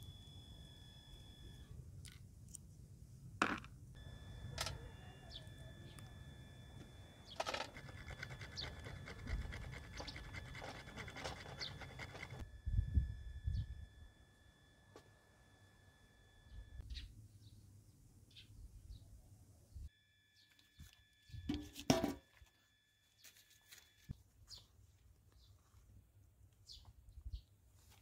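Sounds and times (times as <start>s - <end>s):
faint steady high tones: 0.0s - 1.8s, 4.0s - 16.8s.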